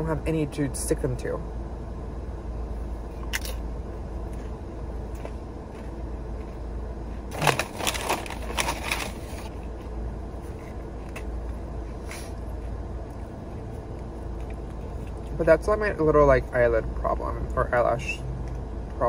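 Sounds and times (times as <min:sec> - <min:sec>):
low steady hum: 0:00.0 - 0:19.0
crunchy food being chewed: 0:04.2 - 0:06.6.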